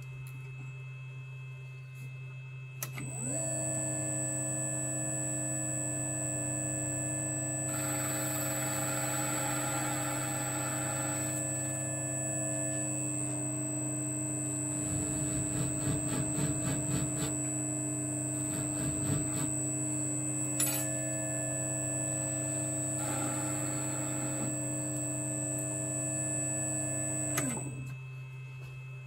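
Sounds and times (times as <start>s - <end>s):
lathe motor hum and whine: 2.8s - 28.7s
motor spinning down: 7.7s - 11.5s, 14.7s - 17.6s, 18.3s - 19.8s, 22.2s - 27.9s.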